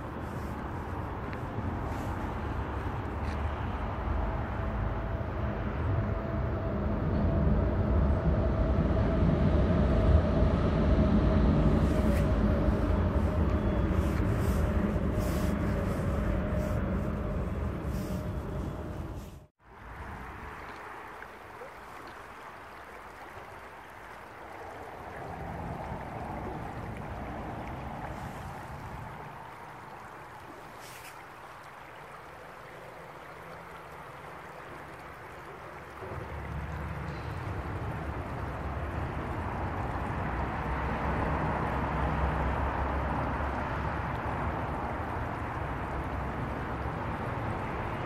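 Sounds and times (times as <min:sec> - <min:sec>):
stream flowing over stones: 0:00.0 - 0:05.8, 0:11.5 - 0:48.0
low rumble: 0:01.5 - 0:19.5.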